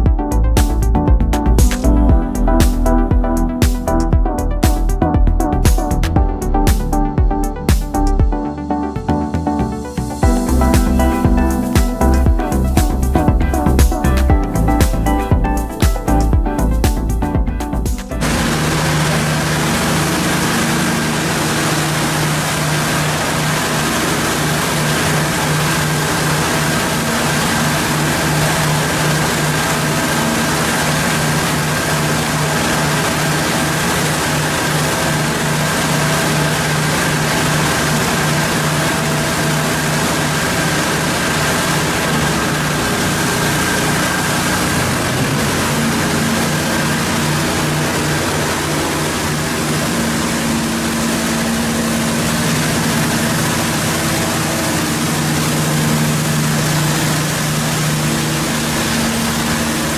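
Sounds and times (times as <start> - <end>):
pump motor humming: 10.1 - 59.9
water jet hissing: 18.2 - 59.9.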